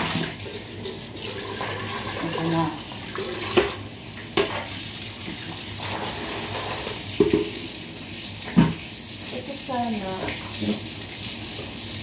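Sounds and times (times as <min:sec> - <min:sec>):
tap water running into sink: 0:00.0 - 0:12.0
dishes knocking: 0:07.2 - 0:07.6.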